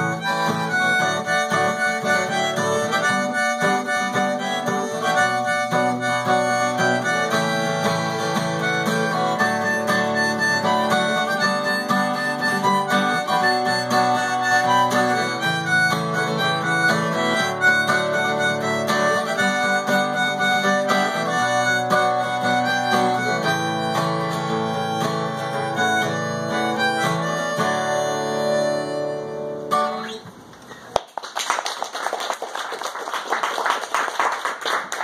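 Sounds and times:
harmonica melody: 0.0 - 30.2
acoustic guitar strumming: 0.0 - 30.5
people clapping: 30.8 - 35.0.

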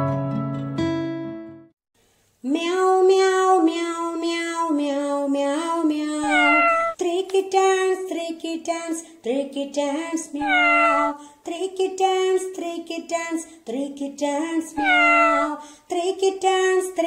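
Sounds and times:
cartoon kitten singing meows: 5.9 - 7.0, 10.2 - 11.2, 14.6 - 15.6.

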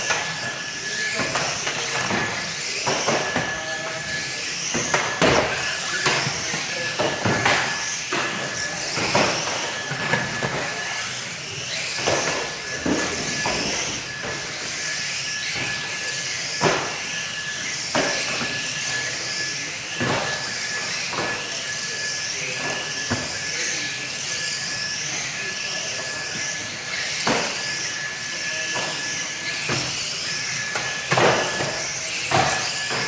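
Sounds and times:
model car motors whirring: 0.0 - 33.0.

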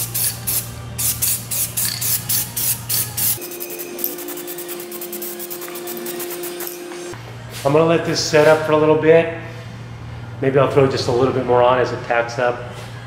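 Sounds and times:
spray can ball rattling: 0.0 - 6.8
spray paint hissing: 0.0 - 7.2.

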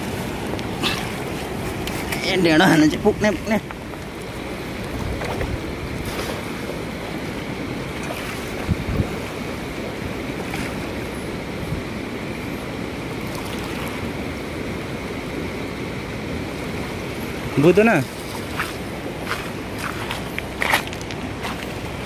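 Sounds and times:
river rushing over gravel: 16.4 - 22.0.

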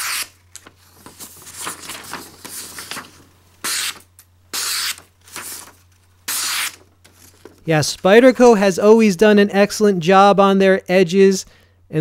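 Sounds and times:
knife slicing paper: 0.0 - 0.4, 3.6 - 4.0, 4.6 - 6.8
paper rustling: 0.1 - 4.0, 4.7 - 8.1.

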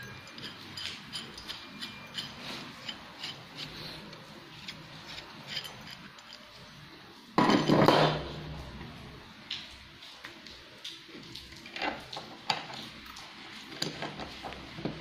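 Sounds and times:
metal scrape: 0.0 - 6.7
metal tubes clicking and rubbing: 0.0 - 6.8.

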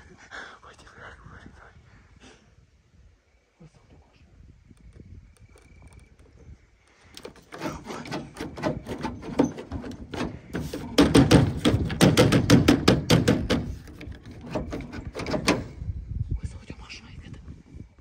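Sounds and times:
rapid sharp knocks: 7.2 - 15.7.

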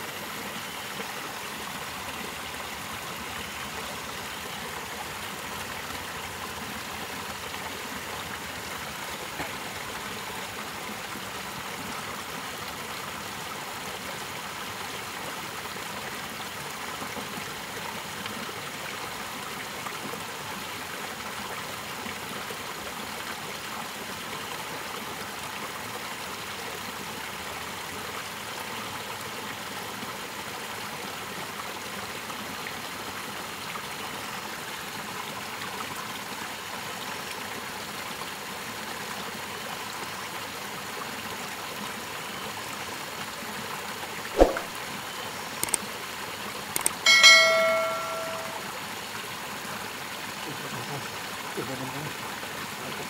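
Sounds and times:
mouse clicks: 44.4 - 44.7
sharp thump: 44.4 - 44.7
bell ding: 47.1 - 48.7.

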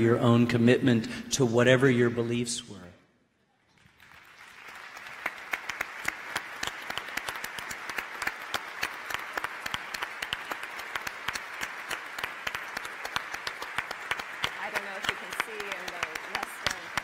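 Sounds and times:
audience applauding: 3.7 - 17.0
sharp individual claps: 3.9 - 17.0.

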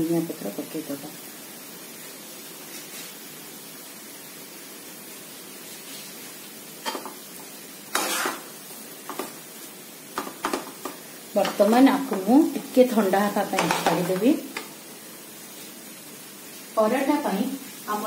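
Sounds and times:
steady low hiss: 0.0 - 18.0
spoon scraping a pan: 6.8 - 9.4, 10.2 - 12.3, 13.5 - 14.8.

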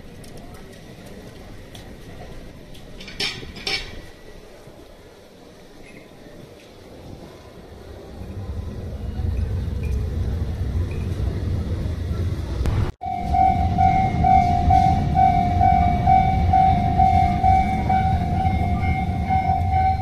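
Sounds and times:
train rumbling on rails: 0.0 - 20.0
level crossing warning bell: 13.0 - 20.0.

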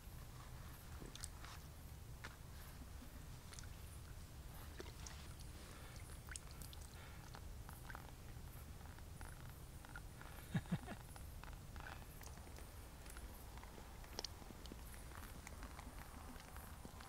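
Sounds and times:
faint clicks and rustles: 0.2 - 17.0.

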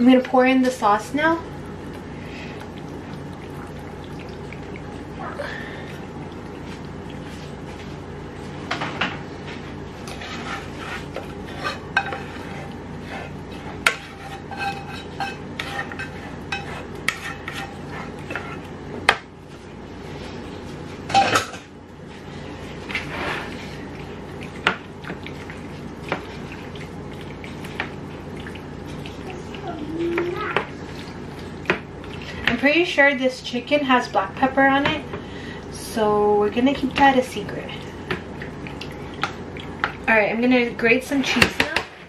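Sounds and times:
utensil scraping a saucepan: 10.1 - 18.7, 22.8 - 23.9.

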